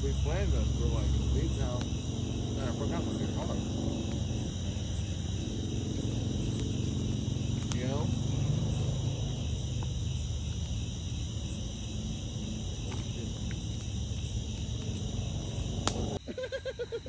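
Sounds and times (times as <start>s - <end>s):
steady low rumble: 0.0s - 16.2s
crickets trilling: 0.0s - 17.0s.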